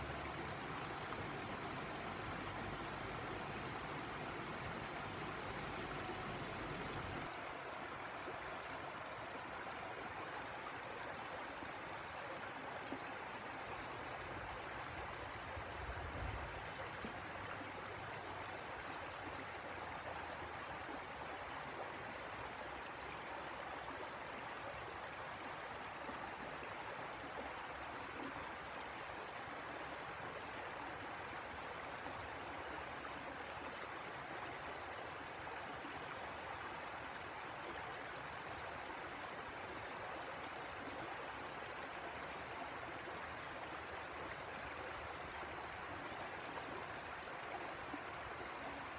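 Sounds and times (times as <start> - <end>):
river rushing over rapids: 0.0 - 9.9.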